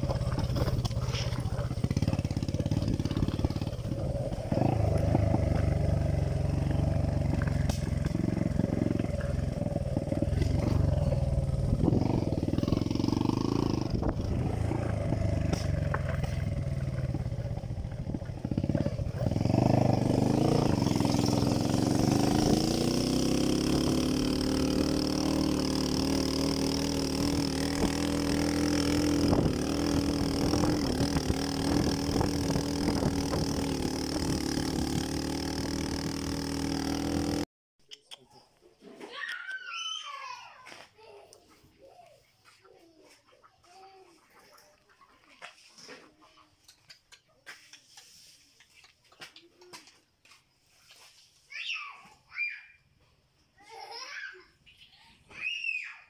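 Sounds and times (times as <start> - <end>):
dirt bike engine revving: 0.0 - 37.5.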